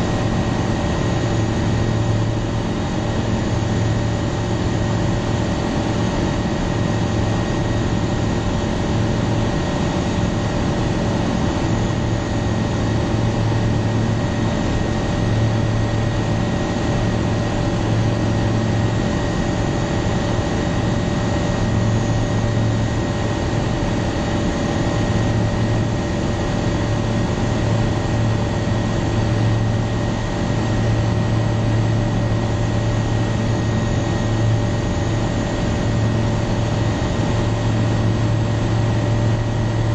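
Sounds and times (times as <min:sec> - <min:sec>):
light aircraft engine droning: 0:00.0 - 0:39.9.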